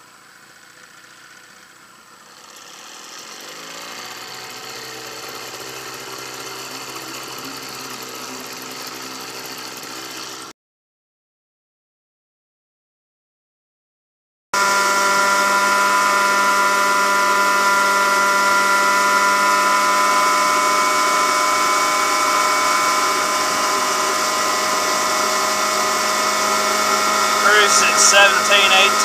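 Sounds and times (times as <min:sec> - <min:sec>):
outboard motor droning: 0:00.0 - 0:10.5, 0:14.6 - 0:29.0.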